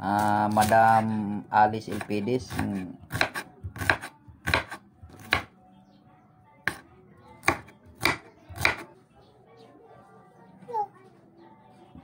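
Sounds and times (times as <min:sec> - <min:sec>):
knife chopping onion on board: 0:01.8 - 0:05.5, 0:07.4 - 0:08.9.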